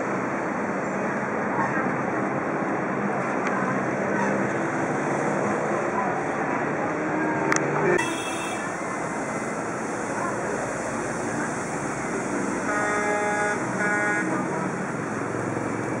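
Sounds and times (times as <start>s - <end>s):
street traffic noise: 0.0s - 16.0s
vehicle horn honking: 8.0s - 8.8s, 12.7s - 14.4s.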